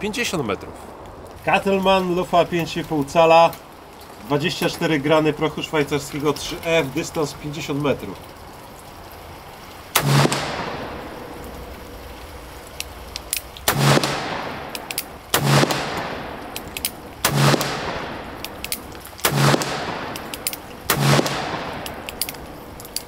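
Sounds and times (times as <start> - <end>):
revolver shots with echo: 10.0 - 11.4, 13.7 - 16.6, 17.2 - 22.2
light clicks: 12.6 - 13.7, 20.0 - 20.9, 21.7 - 23.0.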